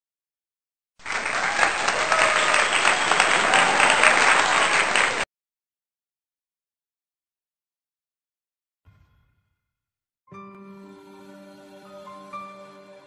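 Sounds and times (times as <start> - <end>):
crowd applause: 1.0 - 5.3.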